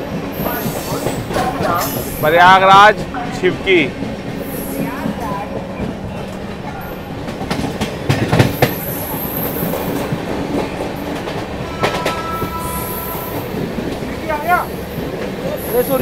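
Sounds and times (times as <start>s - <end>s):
train wheels clattering over rail joints: 0.0s - 12.6s
train rumble: 0.0s - 16.0s.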